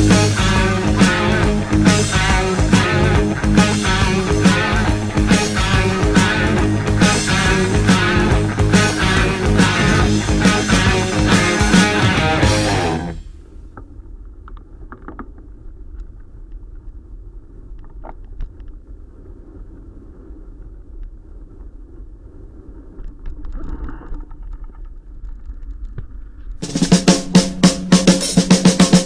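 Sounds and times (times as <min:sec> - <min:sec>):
background music: 0:00.0 - 0:13.2
low wind rumble: 0:00.0 - 0:26.6.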